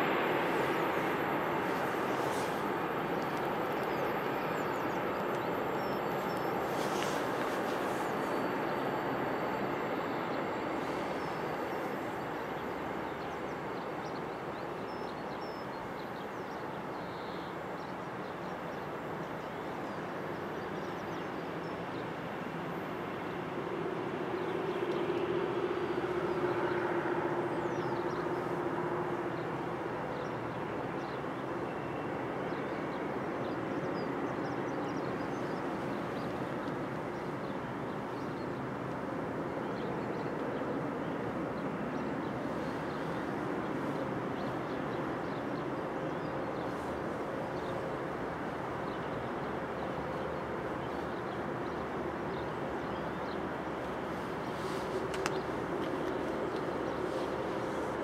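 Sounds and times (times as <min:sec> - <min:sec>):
steady humming tone: 0:00.0 - 0:58.0.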